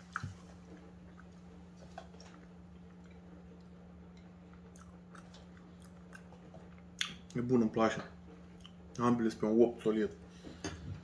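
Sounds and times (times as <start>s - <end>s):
faint chewing: 0.0s - 7.4s, 8.0s - 9.0s
steady low hum: 0.0s - 11.0s.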